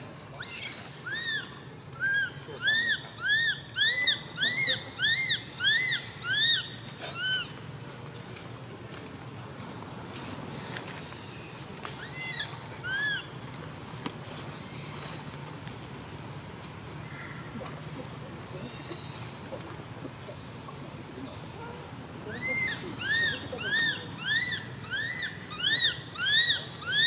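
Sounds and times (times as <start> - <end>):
infant monkey squeaky calls: 0.4 - 7.5, 12.0 - 13.3, 22.3 - 27.0.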